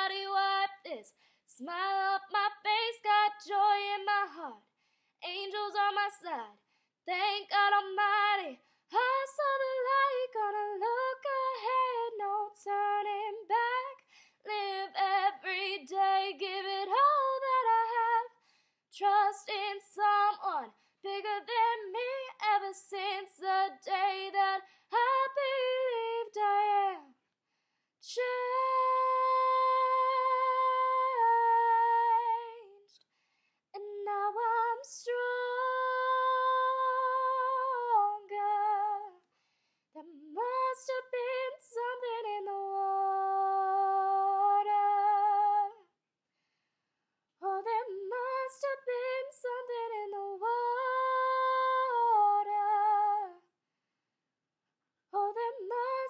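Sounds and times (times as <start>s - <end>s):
woman singing unaccompanied: 40.0s - 45.8s.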